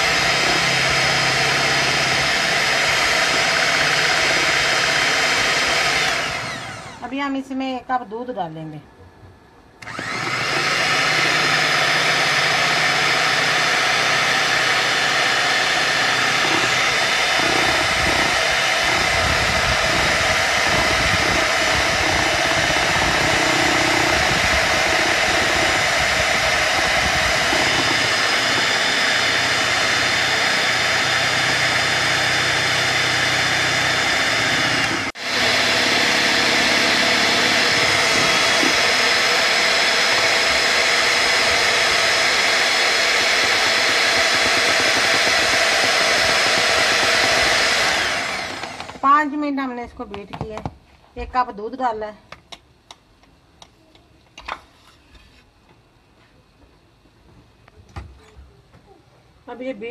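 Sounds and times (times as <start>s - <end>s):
electric hand mixer whipping cream: 0.0s - 7.2s, 9.8s - 49.1s.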